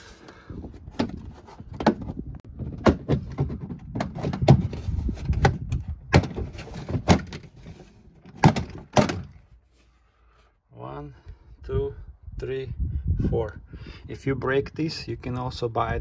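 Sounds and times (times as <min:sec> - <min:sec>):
panel rustling and rumbling: 0:00.6 - 0:09.6.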